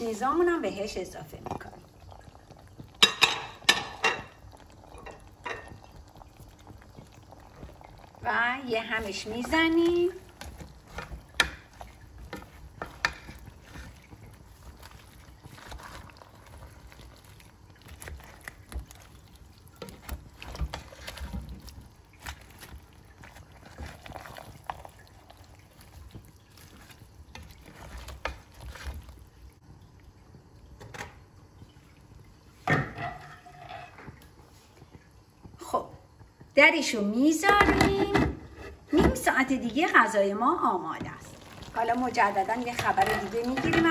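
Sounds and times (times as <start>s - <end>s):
spoon scraping and knocking pot: 2.8s - 4.4s, 9.1s - 16.3s
vegetables sloshing in sauce: 5.5s - 29.6s, 40.6s - 43.9s.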